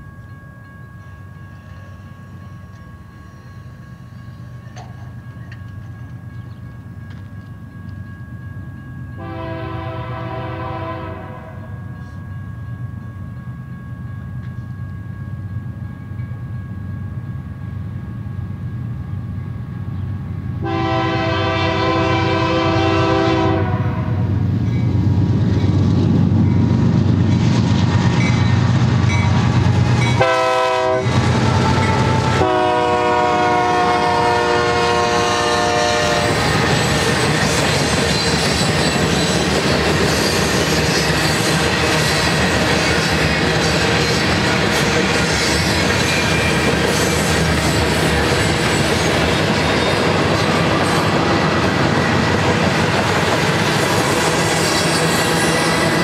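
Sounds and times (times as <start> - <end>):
diesel locomotive rumble: 0.0 - 56.0
train wheels clattering on rail: 1.6 - 9.3, 34.9 - 56.0
train air horn: 9.2 - 11.8, 20.6 - 24.3, 30.2 - 36.5.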